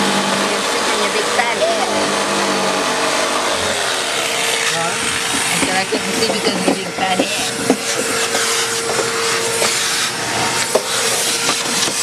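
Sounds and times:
jigsaw cutting fiberglass: 0:00.0 - 0:12.0
vacuum hose sucking: 0:00.0 - 0:12.0
scattered knocks: 0:05.6 - 0:09.8.

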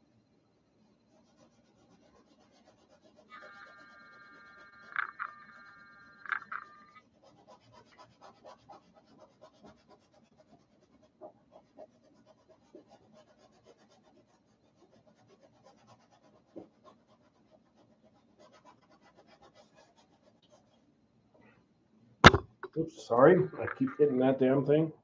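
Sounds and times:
paintbrush scratching on canvas: 0:01.0 - 0:20.9
brush taps: 0:22.2 - 0:24.1.

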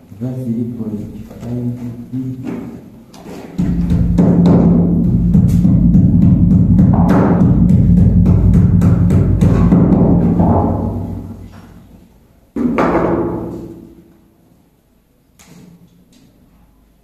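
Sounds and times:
music with heavy drums: 0:03.6 - 0:11.2.

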